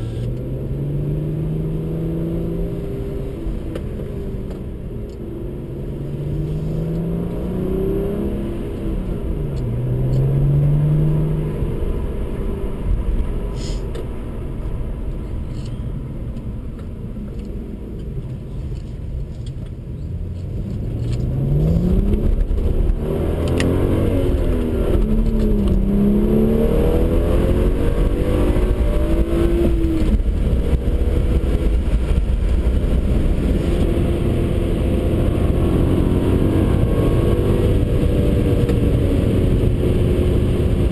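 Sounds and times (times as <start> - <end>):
car engine accelerating: 0.0 - 40.9.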